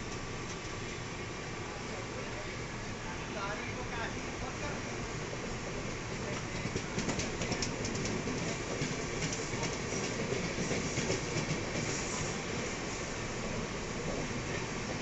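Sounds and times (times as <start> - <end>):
rail joint clicks: 0.0 - 0.8, 5.9 - 12.4
train wheels rumbling on track: 0.0 - 15.0.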